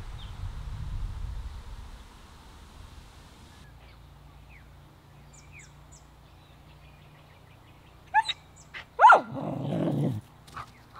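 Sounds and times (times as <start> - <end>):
dog yipping: 8.1 - 8.4, 9.0 - 9.4.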